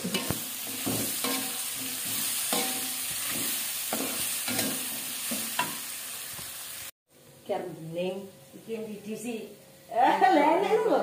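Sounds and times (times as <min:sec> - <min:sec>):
spatula scraping wok: 0:00.0 - 0:06.9
food sizzling in oil: 0:00.0 - 0:07.0.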